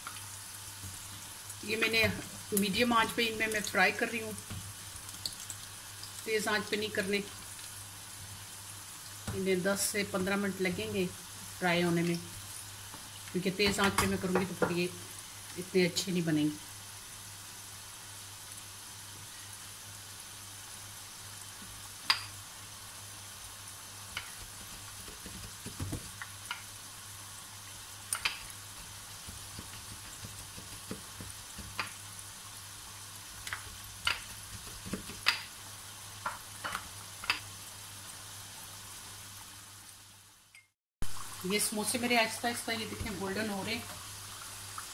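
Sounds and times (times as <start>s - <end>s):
oil popping and crackling: 0.0s - 6.3s, 24.1s - 26.8s, 27.7s - 32.2s, 33.2s - 35.6s
food sizzling in oil: 0.0s - 44.9s.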